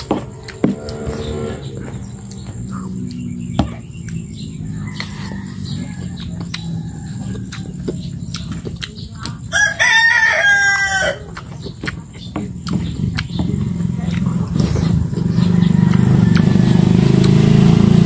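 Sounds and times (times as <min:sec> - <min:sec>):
rooster crowing: 0:04.6 - 0:07.7, 0:09.5 - 0:11.3, 0:15.5 - 0:17.0.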